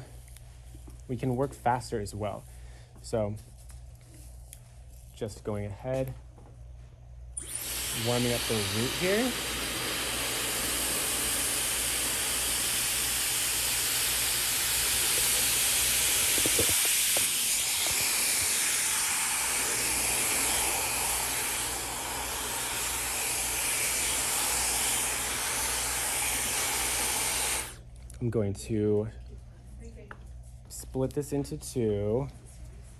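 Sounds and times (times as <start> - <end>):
hair dryer running: 7.4 - 27.8.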